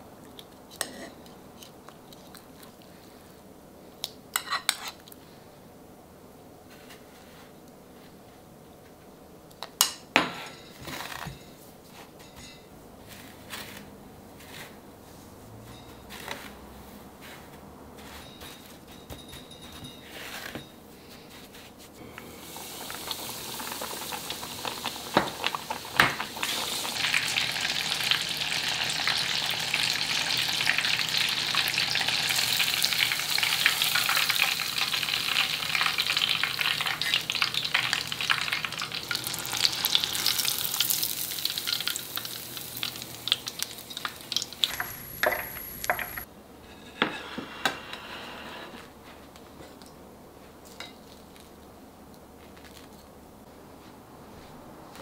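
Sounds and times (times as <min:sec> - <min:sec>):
kitchen clicks and knocks: 0:18.1 - 0:20.8
cutlet deep-frying in hot oil: 0:22.2 - 0:46.2.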